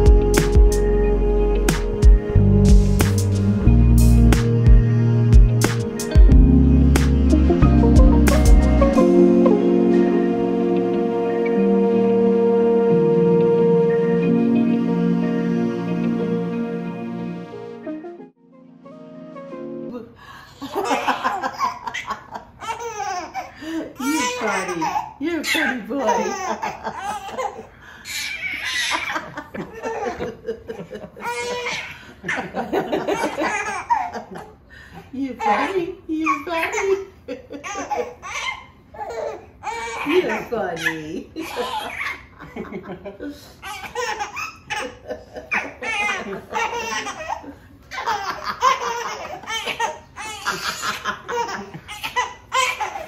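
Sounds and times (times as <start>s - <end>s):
baby and adults laughing: 20.6s - 27.7s, 28.5s - 34.6s, 35.4s - 53.0s.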